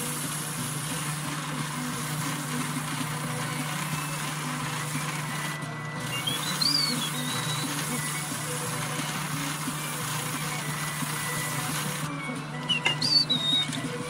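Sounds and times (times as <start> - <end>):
abrasive disc power tool whirring: 0.0 - 14.0
whistle-like squeak: 6.0 - 8.3, 10.4 - 14.0.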